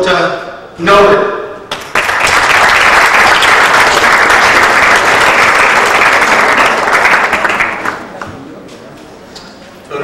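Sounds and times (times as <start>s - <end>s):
audience applauding: 1.7s - 8.4s.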